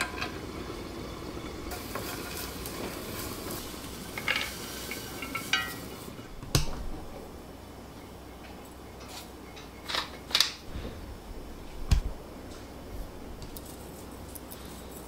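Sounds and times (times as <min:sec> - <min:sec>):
seasoning shaker: 0:01.7 - 0:06.2, 0:13.5 - 0:15.0.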